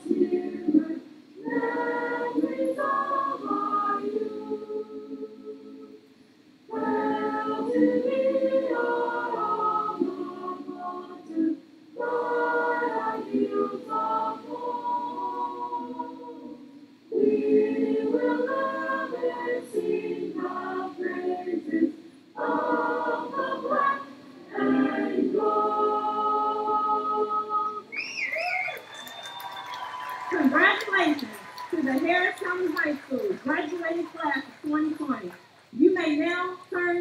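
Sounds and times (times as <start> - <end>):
group singing: 0.0 - 6.0, 6.7 - 28.0.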